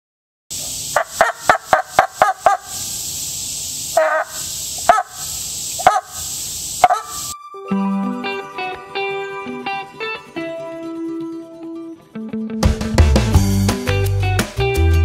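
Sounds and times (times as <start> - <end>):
plastic cup squawking quacks: 4.0 - 5.1.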